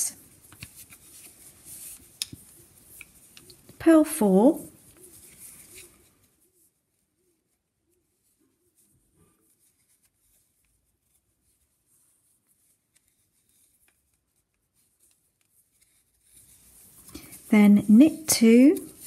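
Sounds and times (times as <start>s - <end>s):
knitting needles clicking: 2.1s - 2.4s.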